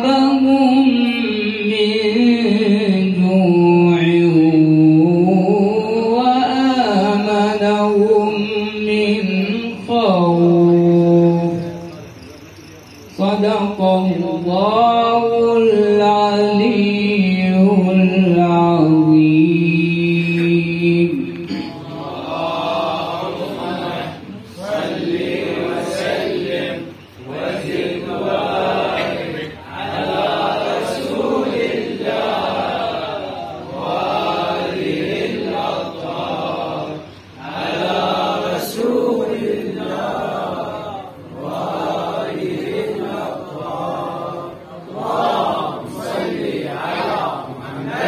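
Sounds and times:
men chanting together: 13.3s - 48.0s.

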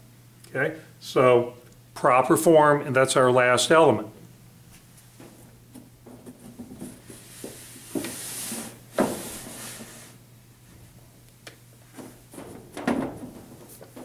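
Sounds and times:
paper sheets rustling and sliding: 6.3s - 10.2s.

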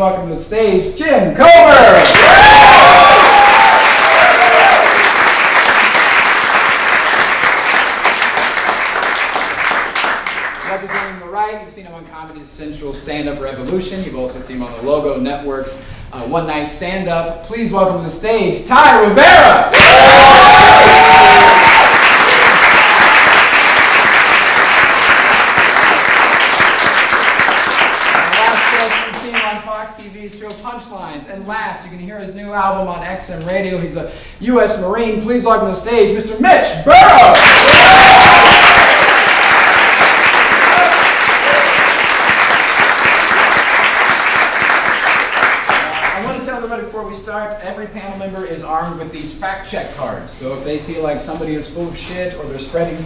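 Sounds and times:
studio audience applauding: 1.9s - 11.2s, 19.7s - 29.8s, 37.0s - 46.4s.

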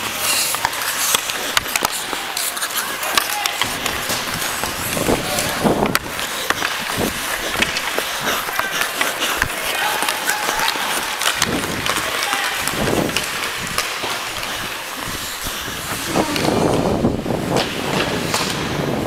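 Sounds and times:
hockey sticks clicking: 0.0s - 19.0s
skates scraping on ice: 0.0s - 19.0s
wind on microphone: 3.6s - 7.7s, 12.7s - 13.8s, 15.0s - 19.0s.

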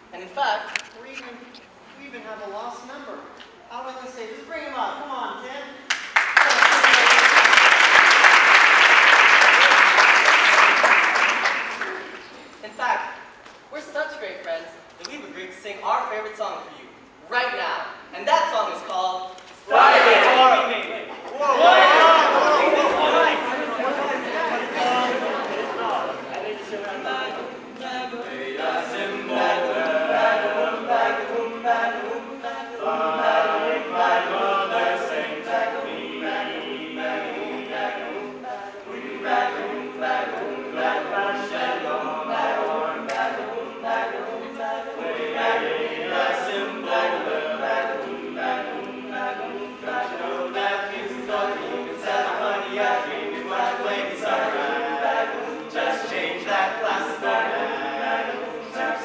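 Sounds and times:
male group singing a cappella: 21.5s - 59.0s.

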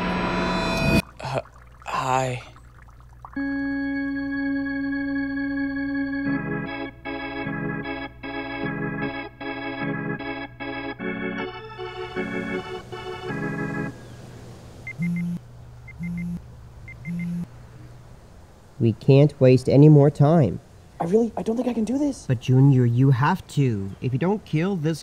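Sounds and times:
pager beeping over buzz: 0.0s - 1.0s, 3.4s - 10.3s, 14.9s - 17.5s
organ-like title music: 3.4s - 14.0s.

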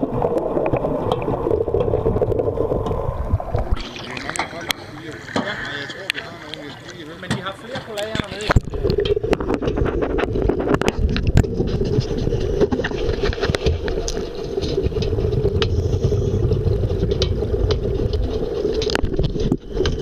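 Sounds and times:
diver breathing bubbles: 0.0s - 7.0s, 8.4s - 20.0s
low underwater hum: 0.0s - 20.0s.

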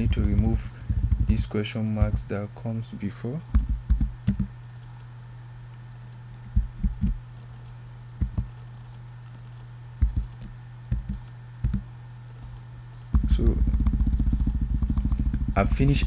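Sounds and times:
steady low hum: 0.0s - 16.0s
computer keyboard key clicks: 3.6s - 4.5s, 10.0s - 11.8s.

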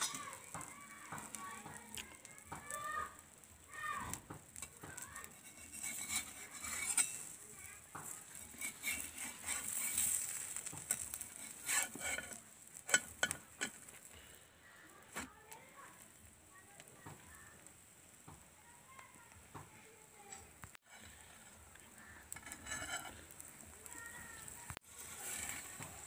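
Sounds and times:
metal spatula scraping a pan: 0.0s - 2.8s, 4.5s - 14.2s, 20.3s - 26.0s
food sizzling in oil: 0.0s - 26.0s.

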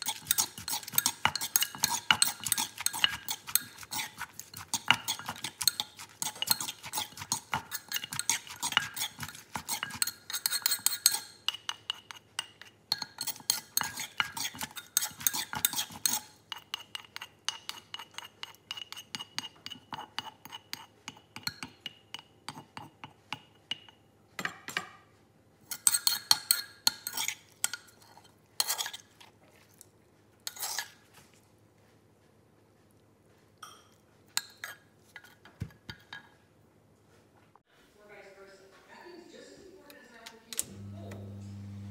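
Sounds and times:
metal spoon scraping in mortar: 0.0s - 20.9s, 25.7s - 29.1s, 30.4s - 31.1s.

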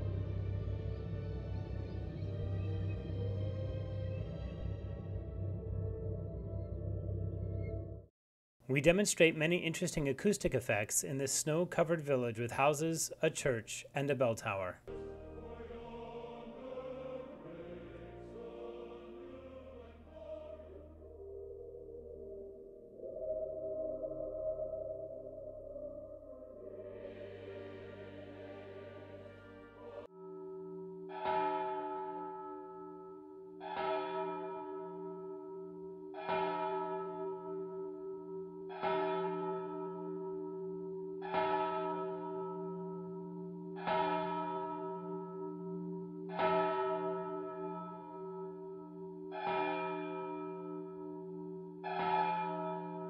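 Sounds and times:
choir singing: 14.9s - 30.1s
church bell ringing: 30.0s - 53.0s.

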